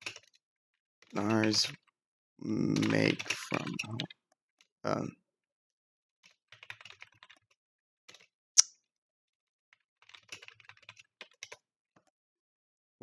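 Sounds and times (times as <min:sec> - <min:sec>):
keyboard typing: 0:01.1 - 0:04.1, 0:06.2 - 0:07.5, 0:10.0 - 0:11.6.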